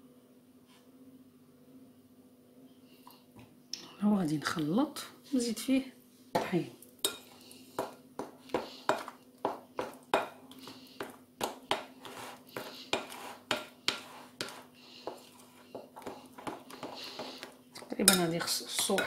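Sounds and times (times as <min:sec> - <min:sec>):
faint steady hum: 0:00.0 - 0:19.0
spatula scraping ceramic bowl: 0:09.8 - 0:19.0.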